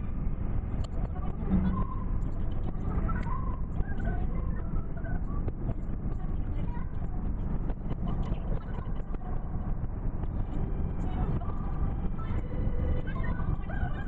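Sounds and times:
road and engine rumble in car: 0.0s - 14.0s.

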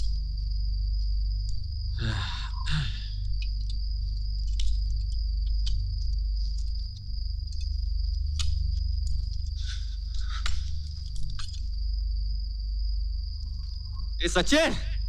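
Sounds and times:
crickets chirring: 0.0s - 15.0s
low rumbling background: 0.0s - 15.0s
small clicks and rustles: 3.2s - 12.0s.

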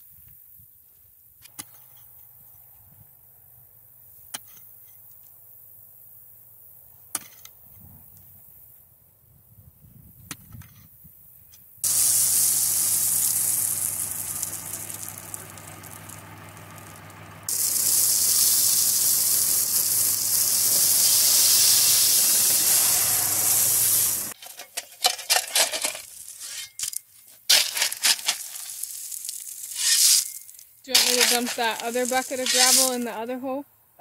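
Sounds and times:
gravel pouring from bucket: 11.8s - 24.4s, 27.5s - 33.1s
tractor engine running: 11.8s - 24.4s, 30.9s - 33.3s
shovel scraping into gravel: 17.5s - 33.2s.

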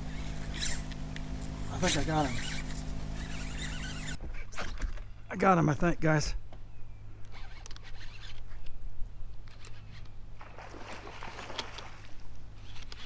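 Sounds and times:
boat engine hum: 0.0s - 5.4s, 6.9s - 13.0s
water splashing: 10.4s - 12.3s.

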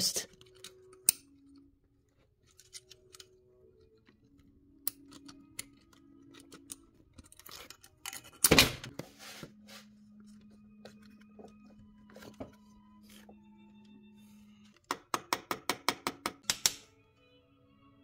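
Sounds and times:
scrape: 9.0s - 10.0s.

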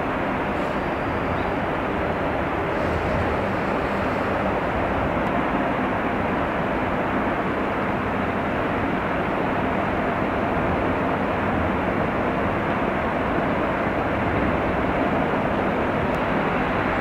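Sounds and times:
ship machinery humming: 0.0s - 9.0s.

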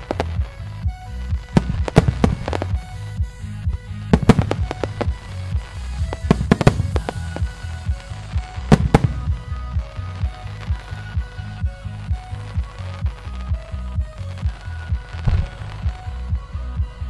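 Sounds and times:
fireworks bursting loud bangs: 0.0s - 3.2s, 4.0s - 11.4s, 14.4s - 16.1s
music: 0.0s - 17.0s.

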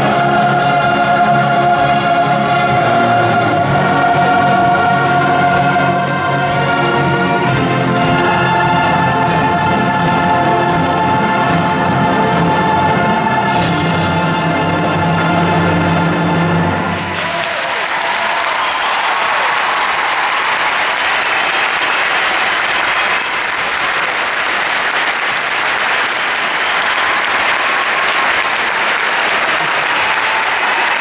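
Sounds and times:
choir and orchestra final chord: 0.0s - 17.3s
audience applause: 16.7s - 31.0s.

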